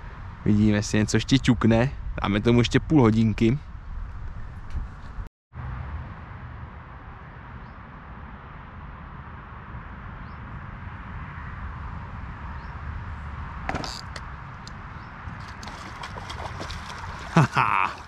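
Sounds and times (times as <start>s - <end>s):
wind over microphone: 1.1s - 5.3s, 10.4s - 18.0s
fishing rod clicks and rustles: 13.7s - 17.3s.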